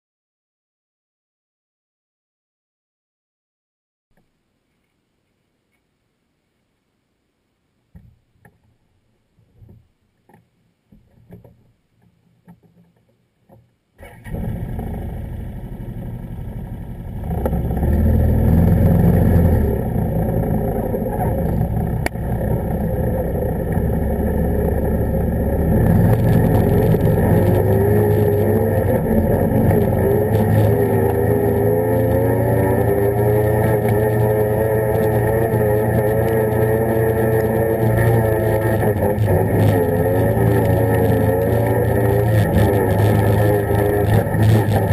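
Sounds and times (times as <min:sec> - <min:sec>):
atv engine running: 0:14.2 - 0:44.9.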